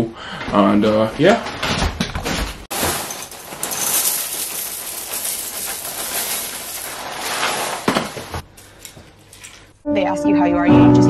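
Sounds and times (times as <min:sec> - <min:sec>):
cereal pouring into bowl: 0:02.7 - 0:08.0.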